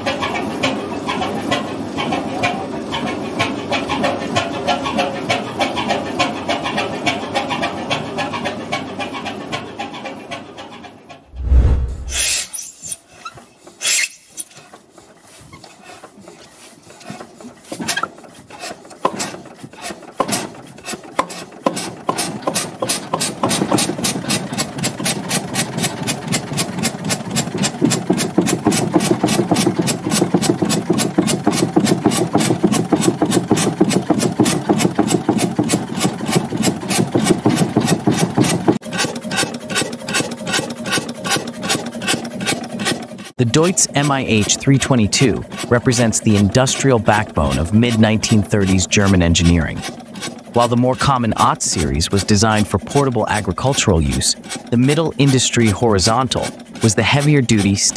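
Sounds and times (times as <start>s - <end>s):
engine clicks and knocks: 0.0s - 11.2s, 16.3s - 43.3s, 43.9s - 57.9s
stationary engine running: 20.2s - 57.9s.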